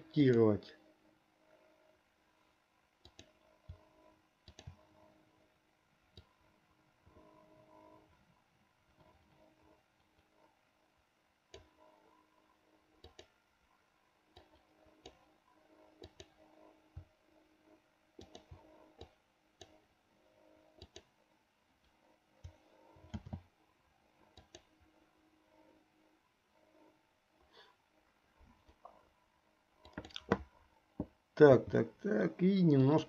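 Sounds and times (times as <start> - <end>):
faint steady hum: 0.0 - 33.0
computer mouse clicks: 3.0 - 4.9, 11.5 - 11.8, 13.0 - 13.4, 14.3 - 15.2, 16.0 - 16.4, 18.2 - 19.8, 20.8 - 21.1, 21.8 - 23.5, 24.3 - 24.7, 29.8 - 30.5.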